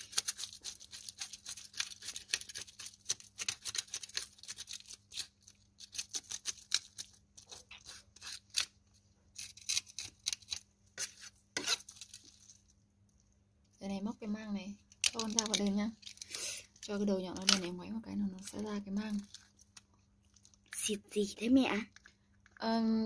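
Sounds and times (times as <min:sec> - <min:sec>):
knife scraping fish scales: 0:00.0 - 0:12.6.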